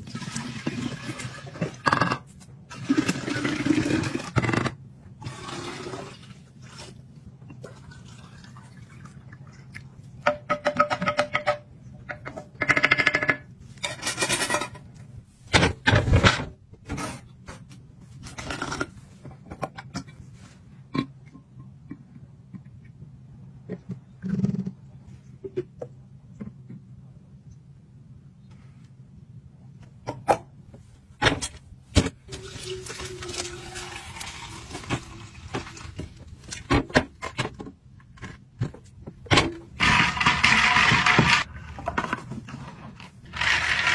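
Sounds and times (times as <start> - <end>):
coffee pouring into glass jar: 32.4 - 35.8.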